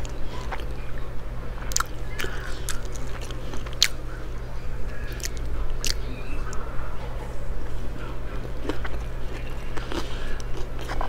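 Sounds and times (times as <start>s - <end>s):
chewing and wet mouth sounds: 0.0s - 11.0s
steady low hum: 0.0s - 11.0s.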